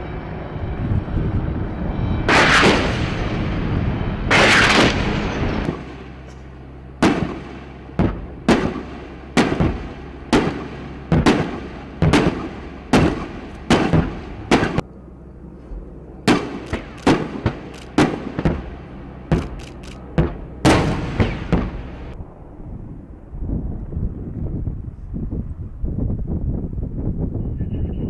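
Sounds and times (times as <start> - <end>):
cannon rounds bursting: 7.0 - 14.8, 16.3 - 22.2.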